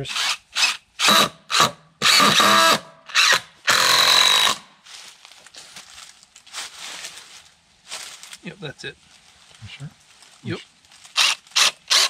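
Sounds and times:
power drill running: 0.0 - 4.6, 11.2 - 12.0.

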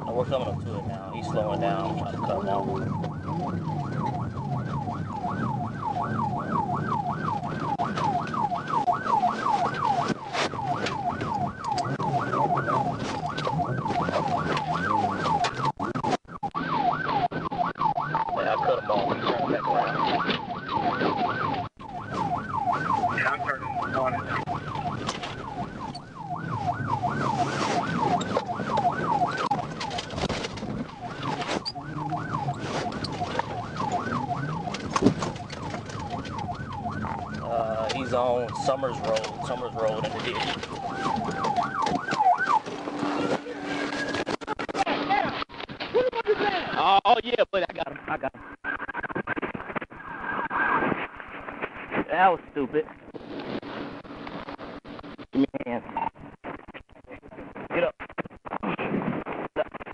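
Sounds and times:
police siren yelping: 0.0 - 45.4
car engine and road noise: 0.0 - 55.3.

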